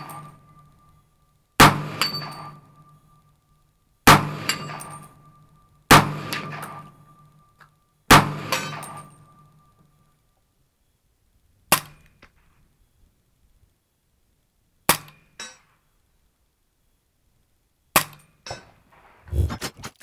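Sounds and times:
metallic clang of steel target: 0:01.6 - 0:02.6, 0:04.1 - 0:07.0, 0:08.1 - 0:09.4
rifle shots: 0:01.6 - 0:02.6, 0:04.1 - 0:05.1, 0:05.9 - 0:07.0, 0:08.1 - 0:09.1.

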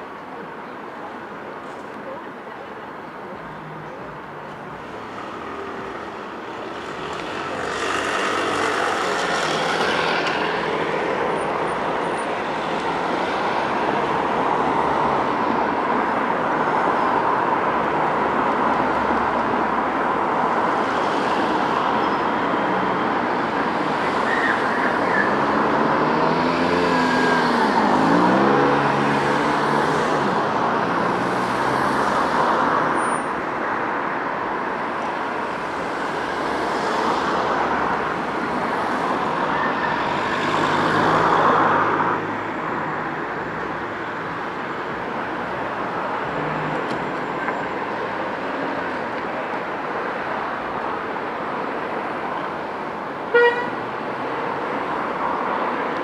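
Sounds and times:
passing cars: 0:00.0 - 0:56.0
loud vehicle passing: 0:05.2 - 0:12.6, 0:25.2 - 0:32.6.

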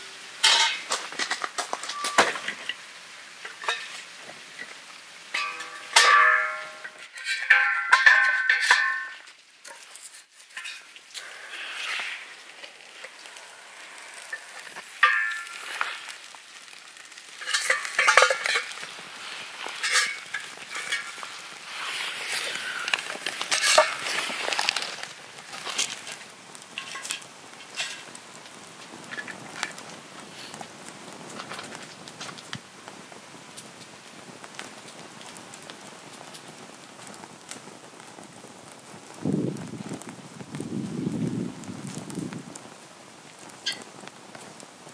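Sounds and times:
fire crackling and popping: 0:00.0 - 0:44.9
firewood knocking into metal can: 0:00.4 - 0:02.8, 0:05.3 - 0:09.8, 0:15.0 - 0:15.6
torch hissing: 0:11.0 - 0:26.8.

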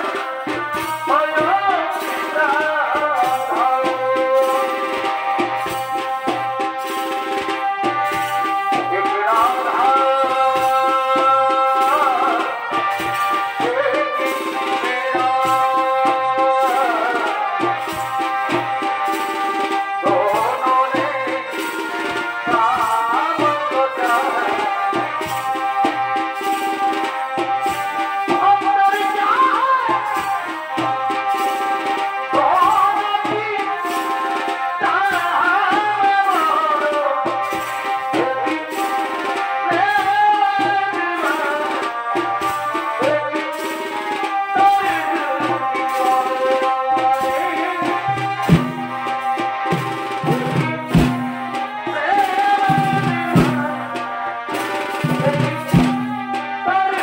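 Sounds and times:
drums beating: 0:00.0 - 0:57.0
sliding held melody: 0:41.2 - 0:57.0.

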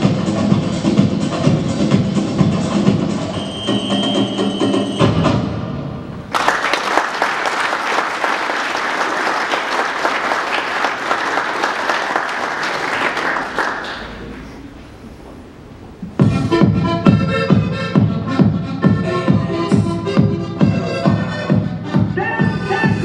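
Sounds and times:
music: 0:00.0 - 0:06.3, 0:16.1 - 0:23.0
audience applauding: 0:06.3 - 0:14.4.

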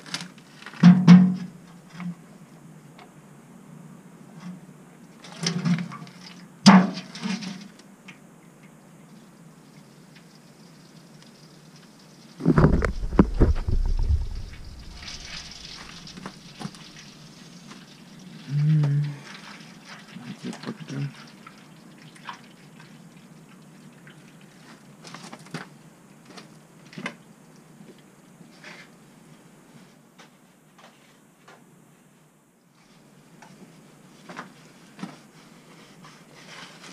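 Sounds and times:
low steady hiss: 0:00.0 - 0:36.9
rustling: 0:12.4 - 0:17.8
oil drum and hose clattering: 0:12.4 - 0:18.0.

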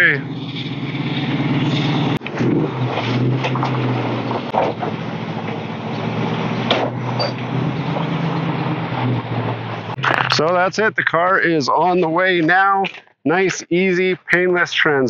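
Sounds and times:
tow truck engine pulling away: 0:00.2 - 0:10.5.

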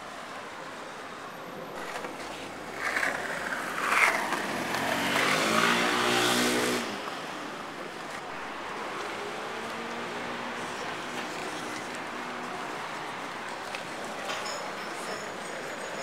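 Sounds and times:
motor vehicle passing: 0:02.7 - 0:07.1.

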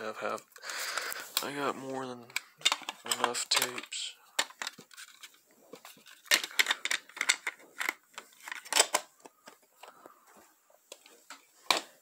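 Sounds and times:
plastic tape cassettes clicking: 0:02.2 - 0:10.2, 0:10.9 - 0:12.0.

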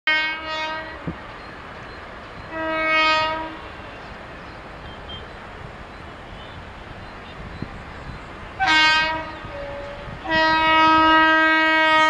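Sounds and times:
locomotive horn blasts: 0:00.1 - 0:01.2, 0:02.5 - 0:04.1, 0:08.5 - 0:12.0.

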